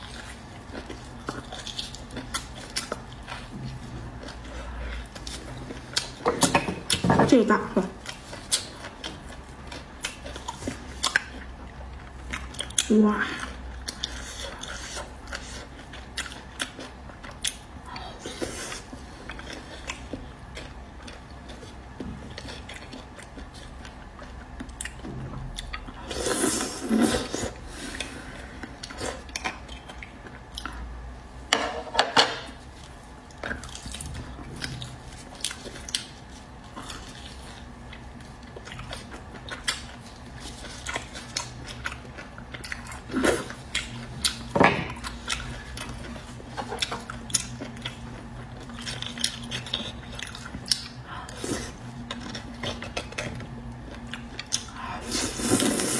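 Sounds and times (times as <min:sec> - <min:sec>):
chewing: 0:00.0 - 0:07.0, 0:08.0 - 0:30.9, 0:32.6 - 0:55.9.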